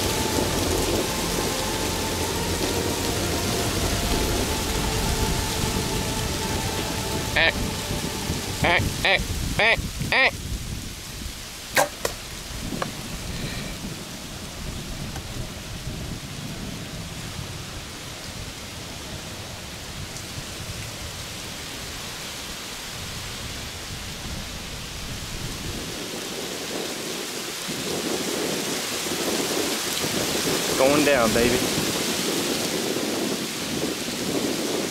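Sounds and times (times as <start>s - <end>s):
wind on microphone: 0.0s - 34.9s
bow string snap: 11.7s - 12.9s.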